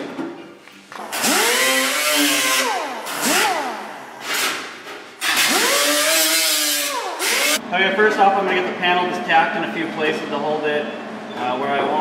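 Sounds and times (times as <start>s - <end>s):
air die grinder whining: 1.0s - 4.6s, 5.2s - 7.6s.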